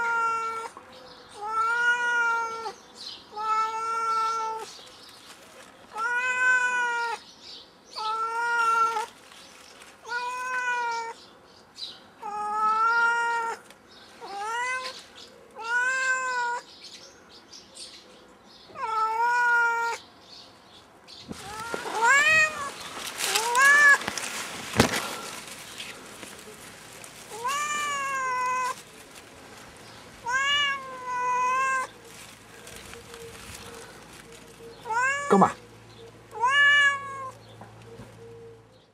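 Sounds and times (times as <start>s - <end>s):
cat meowing: 0.0s - 0.8s, 1.4s - 4.7s, 5.9s - 7.2s, 8.0s - 9.1s, 10.0s - 11.2s, 12.2s - 15.0s, 15.6s - 16.7s, 18.7s - 20.0s, 21.4s - 22.7s, 27.3s - 28.8s, 30.2s - 32.0s, 34.8s - 35.6s, 36.3s - 37.4s
leaves rustling: 0.0s - 11.3s, 12.2s - 16.7s, 21.1s - 38.5s.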